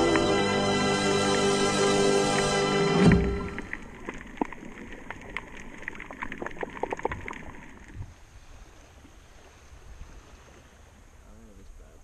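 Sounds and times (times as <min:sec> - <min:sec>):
low underwater wash: 0:00.0 - 0:11.7
underwater clicks and crackles: 0:03.1 - 0:08.2.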